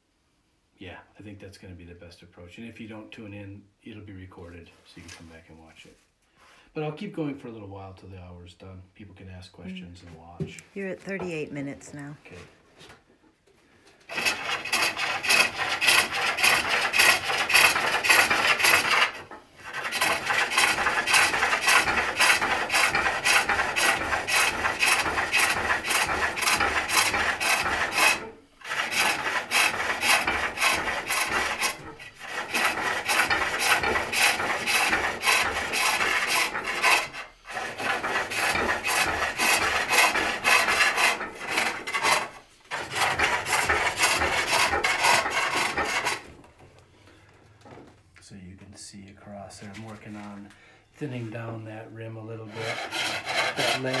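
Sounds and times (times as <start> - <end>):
hook tool rasping wood on lathe: 14.0 - 46.3, 52.4 - 54.0.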